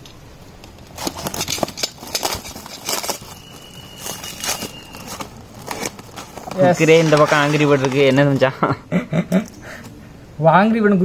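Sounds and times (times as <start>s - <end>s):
cardboard crackling and scraping: 0.7s - 8.5s.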